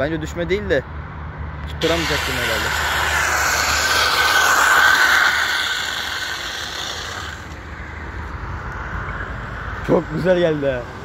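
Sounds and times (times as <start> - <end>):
bicycle tyre skidding on asphalt: 1.8 - 7.8.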